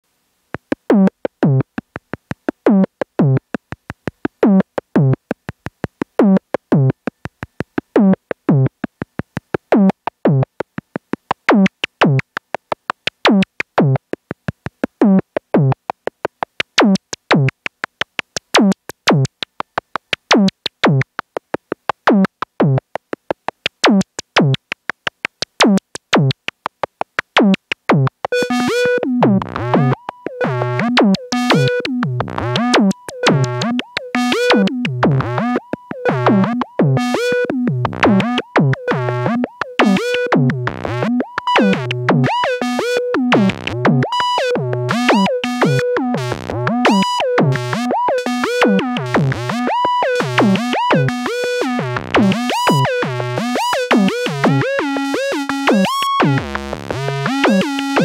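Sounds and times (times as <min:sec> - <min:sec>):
rapid short ticking synth notes: 0:00.9 - 0:58.0
synth kick drum: 0:29.0 - 0:42.4, 0:43.2 - 0:47.9, 0:48.5 - 0:51.1.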